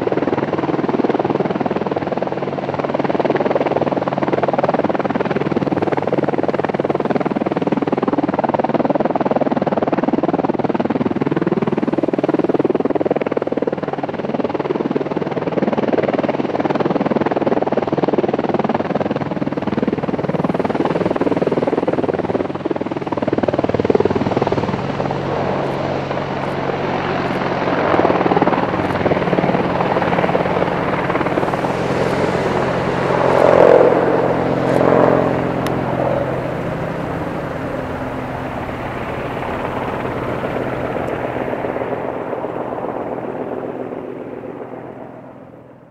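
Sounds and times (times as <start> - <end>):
helicopter rotors and engines: 0.0 - 45.9.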